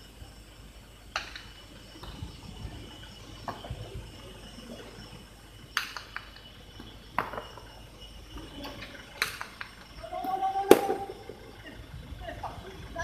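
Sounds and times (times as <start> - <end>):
ball cracking against wall: 10.7 - 11.1.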